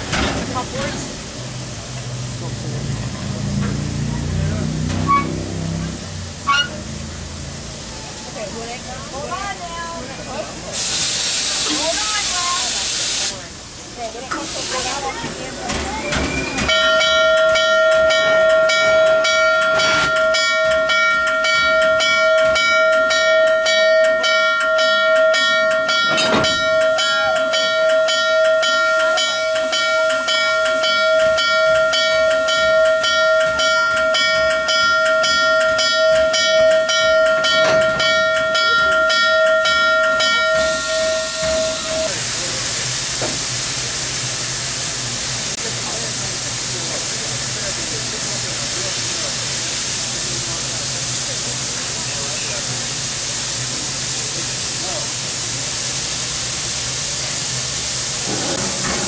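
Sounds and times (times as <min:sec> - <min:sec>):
steam hissing: 0:00.0 - 0:59.0
steam whistle blast: 0:05.0 - 0:05.5, 0:06.4 - 0:06.8
rhythmic steam engine beat: 0:16.7 - 0:59.0.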